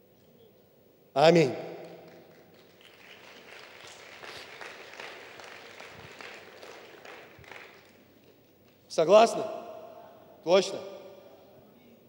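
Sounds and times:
congregation applauding: 1.8 - 8.8.

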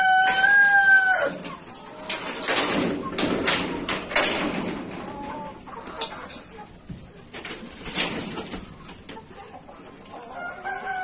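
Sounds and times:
rooster crowing: 0.0 - 1.4, 10.4 - 11.0
chickens clucking and squawking: 0.0 - 11.0.

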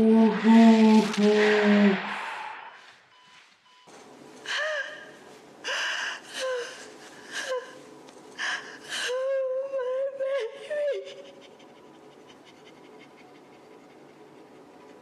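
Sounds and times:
woman gasping and whimpering: 4.5 - 7.8
woman wavering cry: 8.4 - 11.7.

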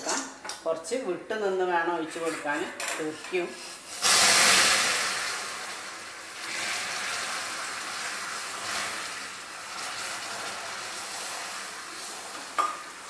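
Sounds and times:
sugar syrup boiling and hissing: 3.5 - 13.0.

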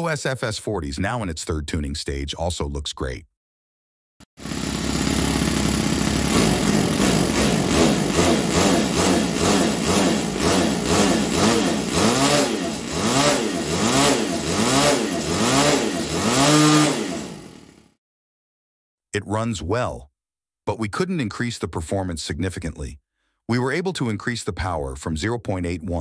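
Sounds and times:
model engine buzzing: 4.4 - 18.0.

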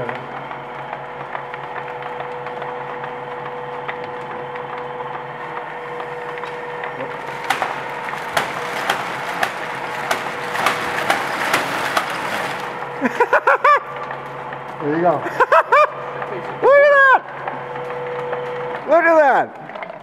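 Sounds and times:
paper bag machine running: 0.0 - 20.0.

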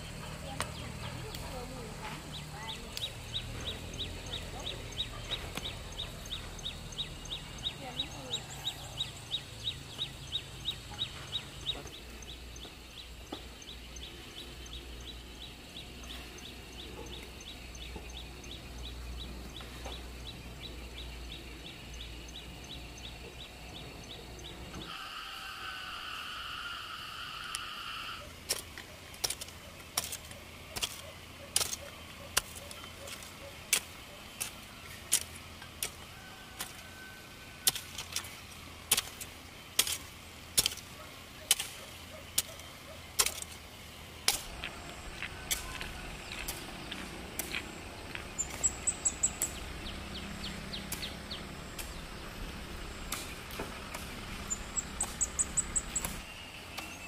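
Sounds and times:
high sharp clicks: 53.0 - 56.9.

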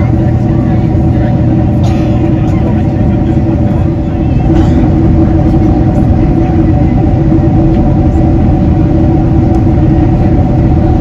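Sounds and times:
aircraft cabin rumble and engine drone: 0.0 - 11.0
steady humming tones: 0.0 - 11.0.

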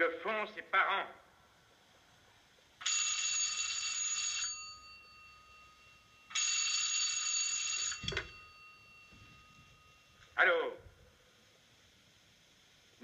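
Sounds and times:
telephone bell ringing: 2.8 - 10.2.

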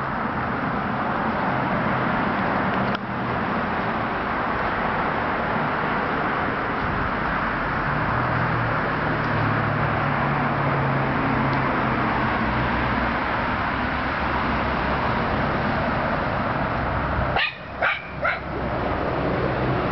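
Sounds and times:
dog barking: 17.4 - 18.5.

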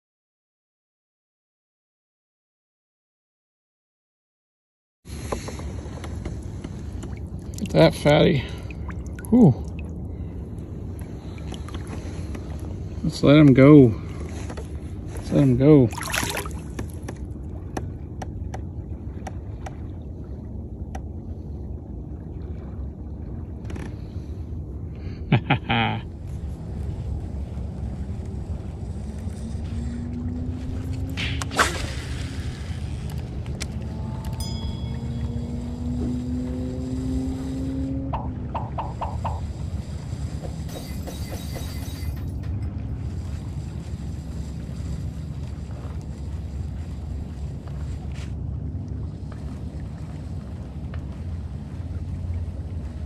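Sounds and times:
wind and water noise: 5.0 - 53.0
steady low rumble: 5.1 - 53.0
faint held tone: 34.1 - 36.4.

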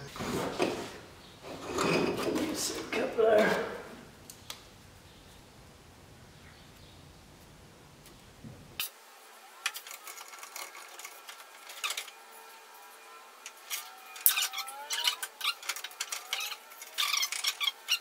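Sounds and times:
braided hose scraping metal: 9.6 - 18.0
short sliding squeaks: 13.7 - 18.0.

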